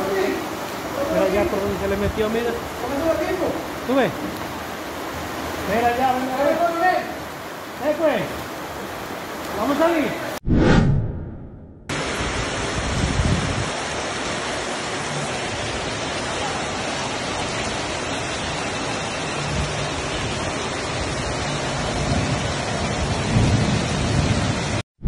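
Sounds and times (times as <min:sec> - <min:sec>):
heavy rain pouring: 0:00.0 - 0:10.4, 0:11.9 - 0:24.8
low rumbles: 0:10.4 - 0:12.6.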